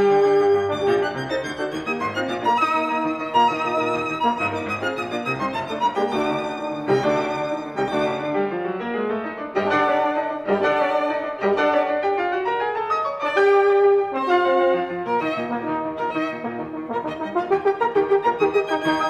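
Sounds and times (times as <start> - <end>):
instrumental background music: 13.4 - 19.0.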